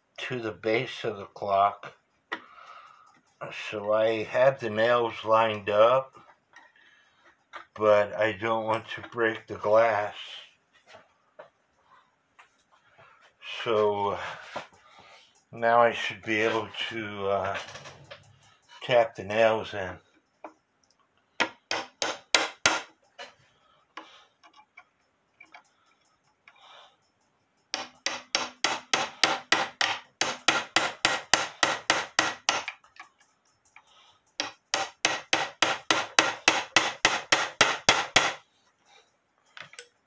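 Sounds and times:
hammer tapping small nails into wood: 21.4 - 23.0, 27.7 - 33.2, 34.4 - 38.4.

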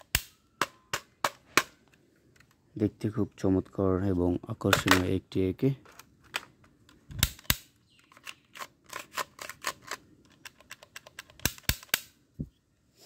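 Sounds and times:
plastic toy gun clicks and knocks: 4.7 - 5.2, 5.8 - 12.2.

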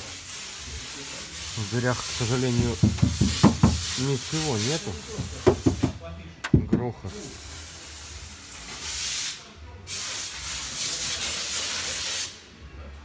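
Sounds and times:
loud even hiss: 0.0 - 6.0.

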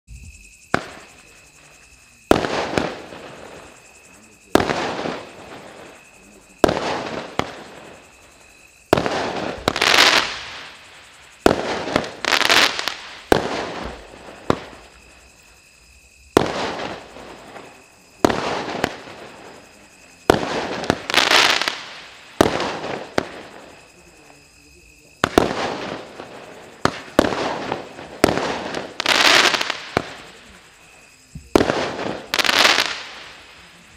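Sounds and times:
firework pops with fizzing hiss: 0.7 - 1.2, 4.5 - 8.1, 8.9 - 15.1, 25.1 - 33.6.

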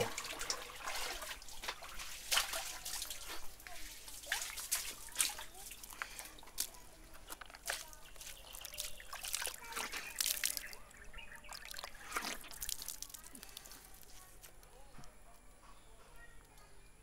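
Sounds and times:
water splashing in a bucket: 0.0 - 14.1.

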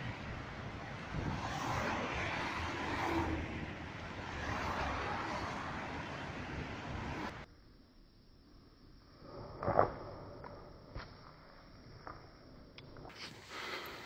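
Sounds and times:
highway traffic rushing: 0.0 - 7.5
vehicles passing close by: 0.0 - 7.5.

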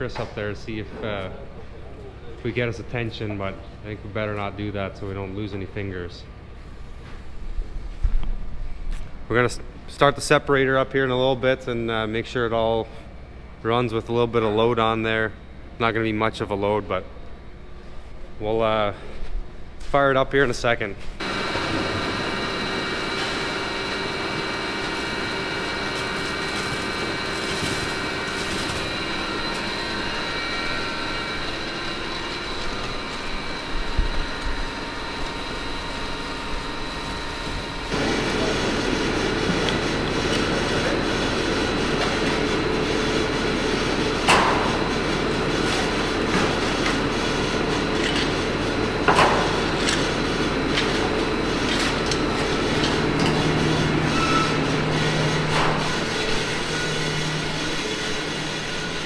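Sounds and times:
conveyor rattling and humming: 0.0 - 59.0
loud machine hum: 20.4 - 59.0.

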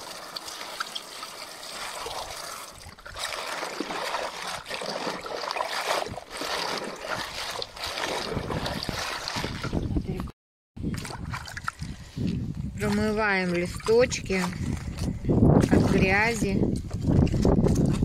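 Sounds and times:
water running into basin: 0.0 - 10.2, 10.8 - 18.0
hands splashing leaves in water: 1.7 - 9.8.

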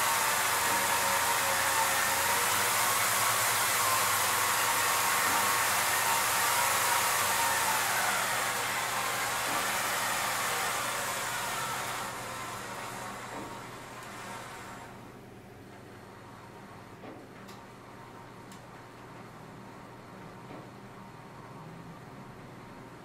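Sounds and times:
camera rig motors whining: 0.0 - 15.0.

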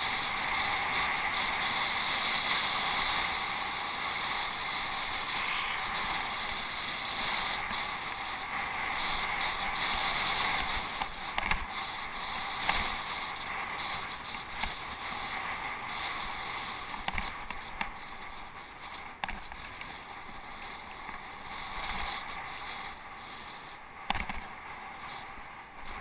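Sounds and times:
tyre and wind noise: 0.0 - 26.0
bicycle knocks and rattles: 11.0 - 11.7, 16.9 - 17.9, 19.1 - 20.0, 24.0 - 24.6.

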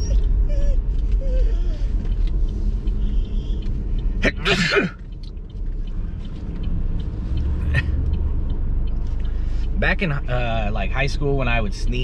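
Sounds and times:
man sneezing loudly: 4.2 - 5.0.

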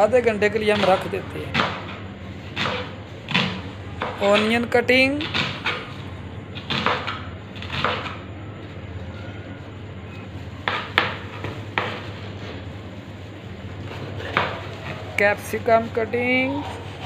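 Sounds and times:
knife chopping on board: 0.7 - 4.5, 6.6 - 8.2, 10.6 - 12.1, 14.2 - 15.0.

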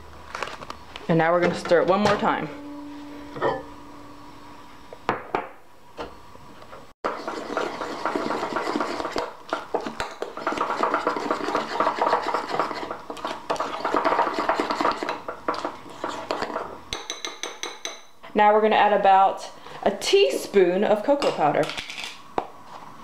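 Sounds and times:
metal spoon stirring in bowl: 7.1 - 18.1.

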